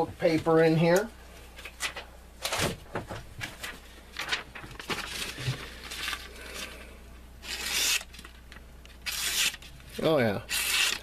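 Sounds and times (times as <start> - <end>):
paper rustling: 1.6 - 6.7
knife blade slicing paper: 7.4 - 8.1, 9.1 - 9.7, 10.5 - 11.0.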